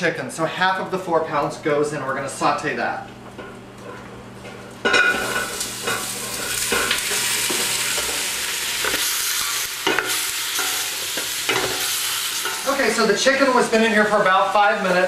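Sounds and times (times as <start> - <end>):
chicken sizzling in hot oil: 5.0 - 15.0.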